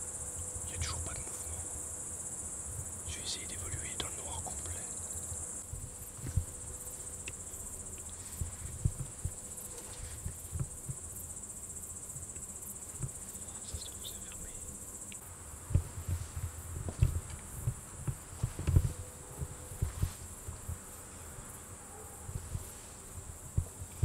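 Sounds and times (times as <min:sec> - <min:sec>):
crickets trilling: 0:00.0 - 0:24.0
dull low thumps: 0:05.6 - 0:07.4, 0:08.3 - 0:11.2, 0:15.6 - 0:21.4, 0:22.2 - 0:24.0.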